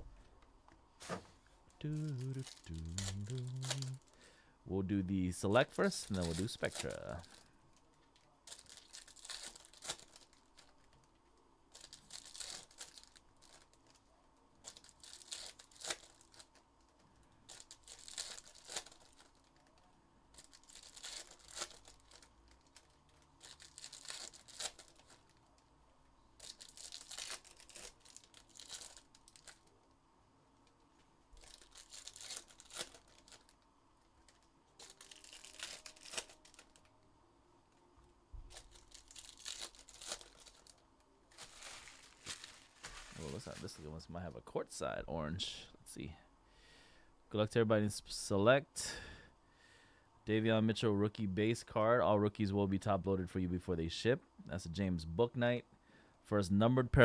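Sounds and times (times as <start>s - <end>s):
foil wrappers tearing and crinkling: 1.8s - 4.1s, 5.8s - 7.5s, 8.4s - 11.1s, 11.7s - 25.6s, 26.4s - 29.8s, 31.4s - 33.6s, 34.2s - 36.9s, 38.5s - 43.9s.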